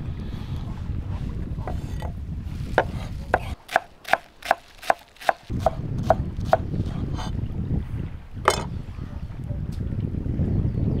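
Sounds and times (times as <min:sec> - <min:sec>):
wind rumble on microphone: 0:00.0 - 0:03.6, 0:05.4 - 0:11.0
knife chopping on cutting board: 0:02.8 - 0:06.6.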